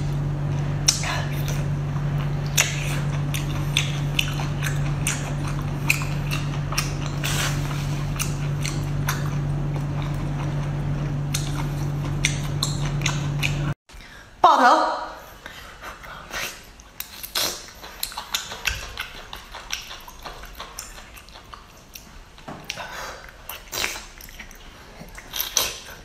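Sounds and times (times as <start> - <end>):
steady low hum: 0.0 - 14.4
mouth chewing smacks: 0.8 - 13.8, 16.3 - 26.0.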